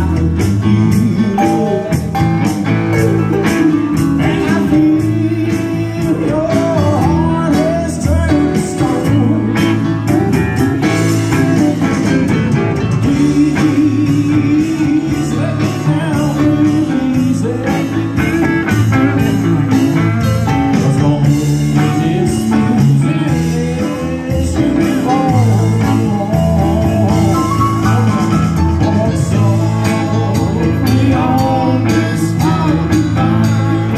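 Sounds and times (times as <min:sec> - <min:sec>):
bass guitar: 0:00.0 - 0:33.9
drum kit: 0:00.0 - 0:33.9
electric guitar: 0:00.0 - 0:33.9
man singing: 0:00.0 - 0:33.9.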